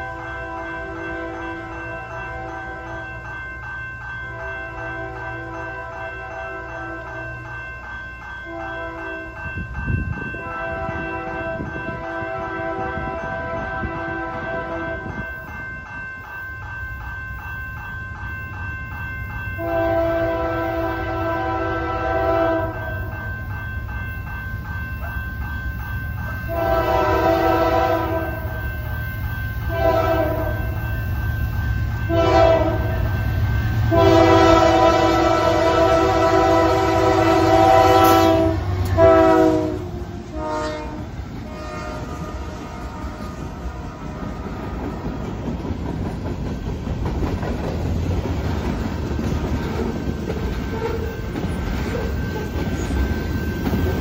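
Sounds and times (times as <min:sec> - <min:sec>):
low rumble of train: 0:00.0 - 0:54.0
railroad crossing bell ringing: 0:00.0 - 0:54.0
locomotive air horn blasts: 0:08.5 - 0:09.3, 0:10.4 - 0:15.2, 0:19.6 - 0:23.0, 0:26.5 - 0:28.6, 0:29.7 - 0:30.7, 0:32.1 - 0:33.0, 0:33.9 - 0:45.1.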